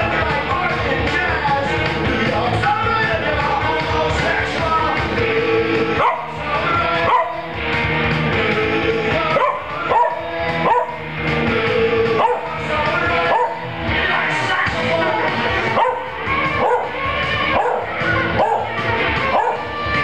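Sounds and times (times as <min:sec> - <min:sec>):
punk rock song with saxophone: 0:00.0 - 0:20.0
dog yipping and howling: 0:06.0 - 0:06.4, 0:07.0 - 0:07.5, 0:09.3 - 0:11.0, 0:12.2 - 0:12.5, 0:13.2 - 0:13.6, 0:15.7 - 0:20.0.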